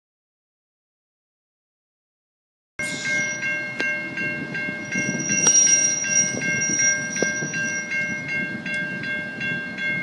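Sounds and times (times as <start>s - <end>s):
thin high whine: 2.8s - 8.8s
diesel locomotive running: 2.8s - 10.0s
level crossing bells ringing: 2.8s - 10.0s.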